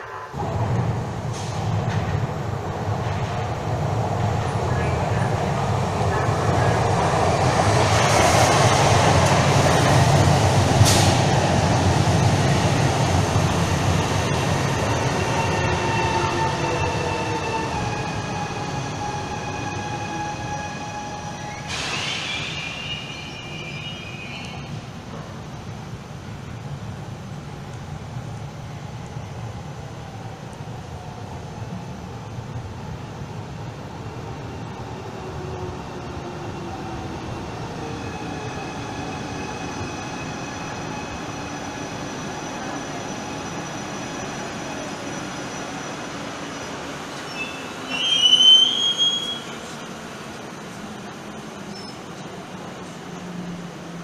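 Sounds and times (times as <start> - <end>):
train rumble: 0.0 - 54.0
high hiss and squeal: 20.4 - 24.8, 39.7 - 49.8.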